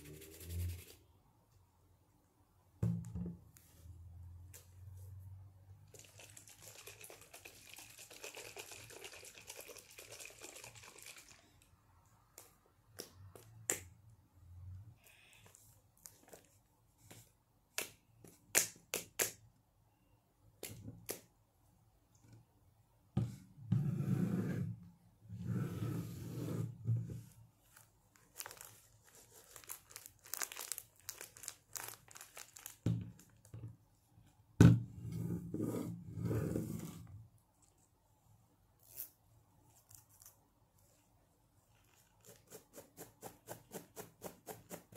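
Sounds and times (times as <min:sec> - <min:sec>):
scratchy rubbing: 0:00.0 - 0:01.0.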